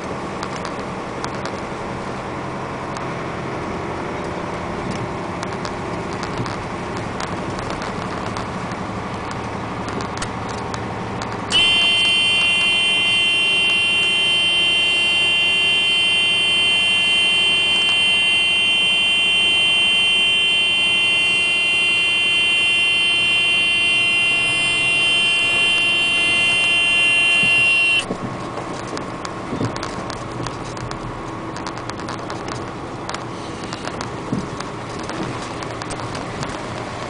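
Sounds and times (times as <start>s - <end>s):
truck engine: 0.0s - 37.0s
high-pitched buzzer tone: 11.5s - 28.1s
tyres on gravel: 28.1s - 37.0s.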